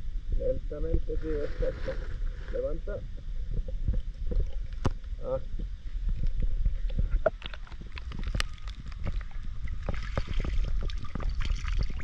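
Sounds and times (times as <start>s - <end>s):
muffled underwater rumble: 0.0s - 12.0s
knocks and clicks underwater: 3.1s - 12.0s
water splashing and draining: 7.8s - 12.0s.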